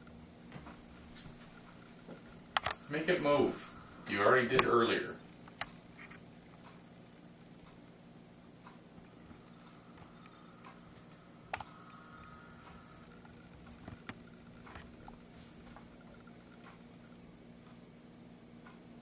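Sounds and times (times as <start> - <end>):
faint high-pitched whine: 0.0 - 19.0
low hum: 0.0 - 19.0
faint clicks: 8.6 - 17.8.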